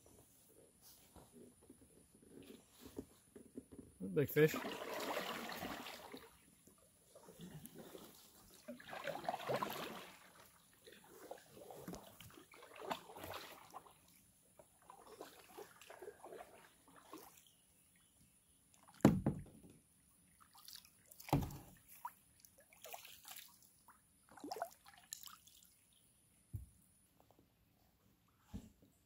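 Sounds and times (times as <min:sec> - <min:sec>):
water sloshing and dripping: 0:04.4 - 0:18.1, 0:20.3 - 0:26.8.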